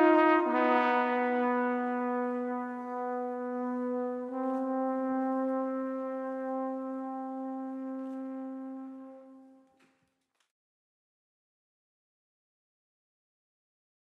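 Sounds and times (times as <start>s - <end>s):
brass instrument long notes: 0.0s - 9.8s.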